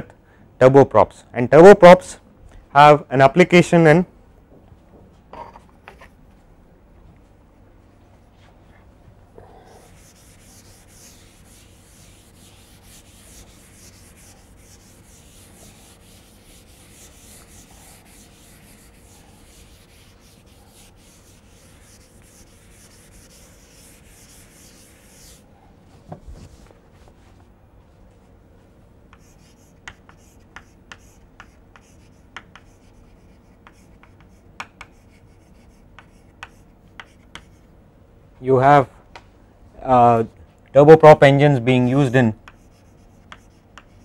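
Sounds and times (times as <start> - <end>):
duster scraping a chalkboard: 9.7 - 25.4.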